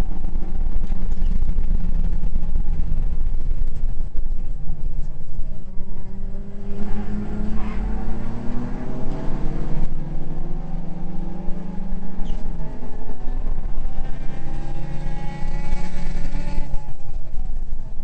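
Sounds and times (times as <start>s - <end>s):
car engine accelerating hard: 0.0s - 17.9s.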